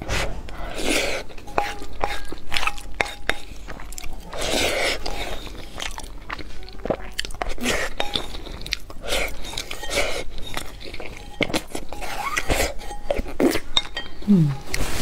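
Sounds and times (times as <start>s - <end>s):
person chewing: 0.0s - 15.0s
wet mouth noises: 14.2s - 14.8s.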